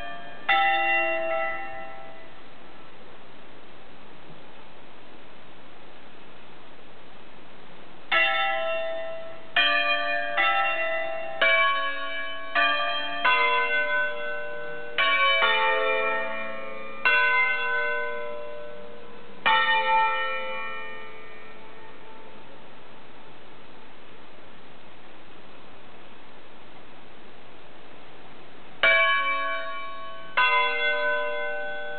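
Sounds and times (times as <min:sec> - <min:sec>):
church bells ringing: 0:00.0 - 0:02.5, 0:08.1 - 0:23.4, 0:28.8 - 0:31.9.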